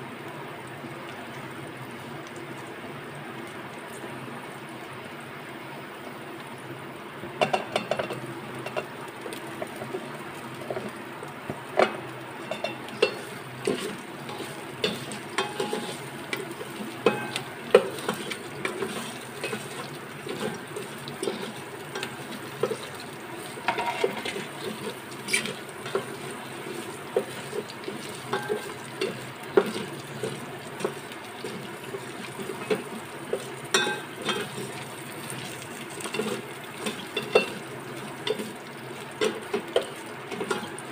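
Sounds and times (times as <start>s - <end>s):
food sizzling: 0.0s - 40.9s
wooden spatula scraping metal pot: 23.6s - 31.6s.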